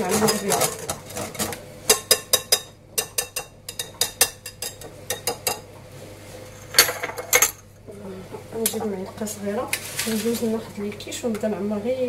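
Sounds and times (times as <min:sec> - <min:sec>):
whisk clinking against a bowl: 0:01.9 - 0:05.6.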